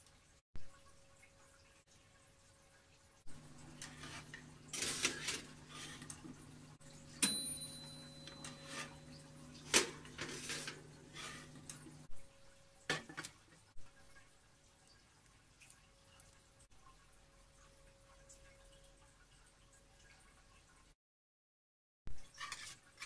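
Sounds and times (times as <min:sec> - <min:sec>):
low steady hum: 0:00.6 - 0:20.9
metal tray scraping and rattling: 0:03.8 - 0:06.3, 0:08.3 - 0:12.0, 0:22.4 - 0:23.0
sharp ringing metal clink: 0:07.2 - 0:08.9.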